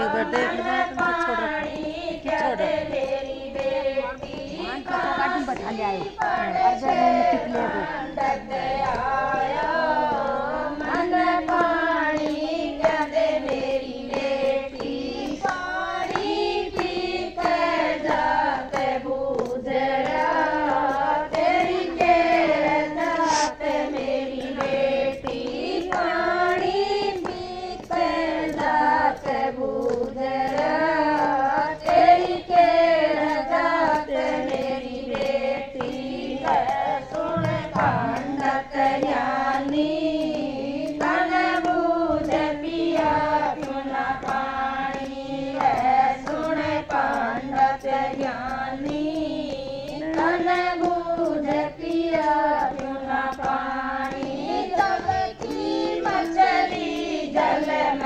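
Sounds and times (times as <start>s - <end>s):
hand-clapping: 0.0s - 58.0s
women singing together: 0.0s - 58.0s.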